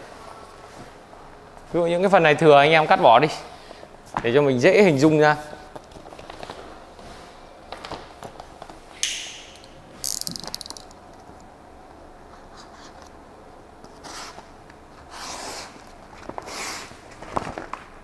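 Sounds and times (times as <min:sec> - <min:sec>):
paper crinkling: 0:16.1 - 0:18.0
paper rustling: 0:16.1 - 0:18.0.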